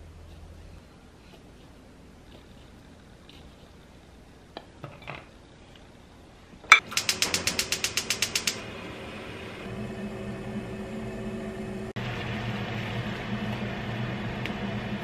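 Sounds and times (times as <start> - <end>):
gas igniter ticking rapidly: 6.8 - 8.6.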